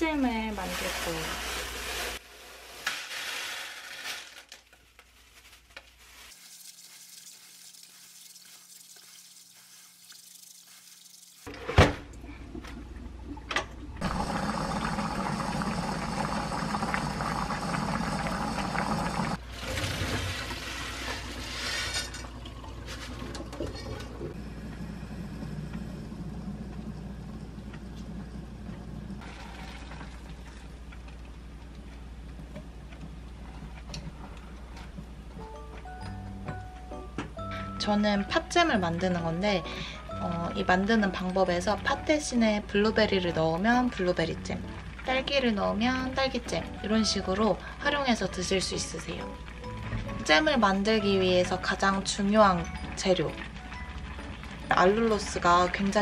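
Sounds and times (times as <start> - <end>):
water boiling hard in saucepan: 0.3 - 3.6, 6.3 - 11.5, 13.9 - 31.2, 39.0 - 56.0
running water: 6.3 - 11.5.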